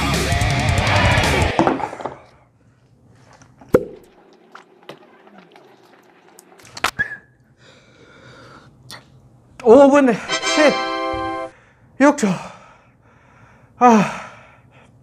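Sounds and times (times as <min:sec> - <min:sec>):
man whistling breathily: 0:07.0 - 0:07.4.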